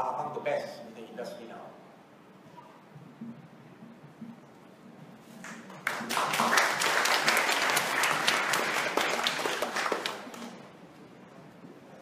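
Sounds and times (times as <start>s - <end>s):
audience applause: 5.5s - 10.6s.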